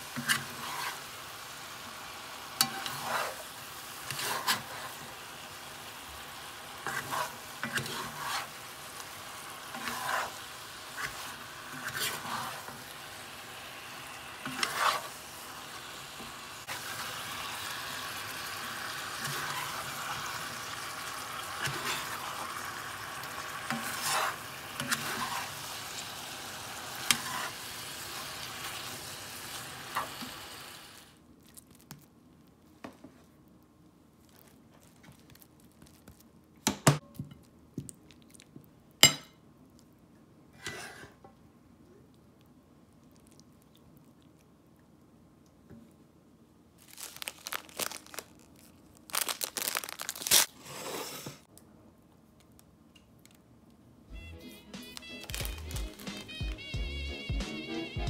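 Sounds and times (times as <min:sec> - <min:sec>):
food sizzling in a pot: 0:00.0 - 0:31.2
metal spatula scraping pot: 0:00.1 - 0:01.1, 0:02.6 - 0:05.1, 0:06.8 - 0:08.7, 0:09.7 - 0:12.8, 0:14.4 - 0:15.2, 0:19.2 - 0:20.1, 0:21.5 - 0:22.4, 0:23.7 - 0:25.7, 0:27.0 - 0:27.7, 0:40.6 - 0:41.2.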